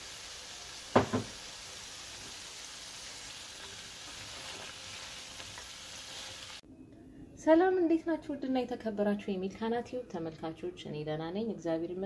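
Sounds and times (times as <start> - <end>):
food sizzling in hot oil: 0.0 - 6.6.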